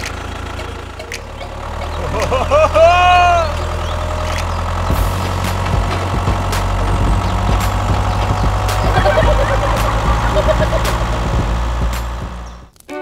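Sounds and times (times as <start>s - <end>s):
tractor engine running: 0.0s - 12.8s
faint clicks: 3.5s - 4.9s.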